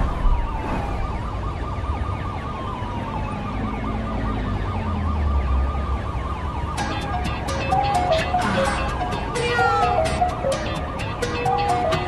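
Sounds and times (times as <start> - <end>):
siren-like wailing tone: 0.0 - 10.6.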